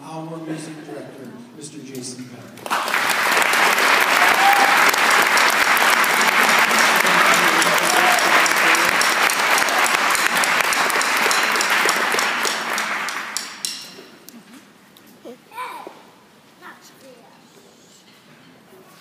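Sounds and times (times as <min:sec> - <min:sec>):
audience applauding: 0:02.6 - 0:13.7.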